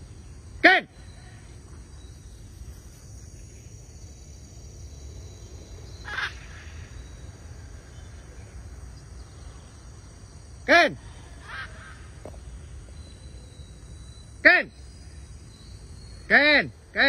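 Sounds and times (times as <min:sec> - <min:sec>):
bird squawk: 0:06.0 - 0:07.1, 0:11.3 - 0:12.2.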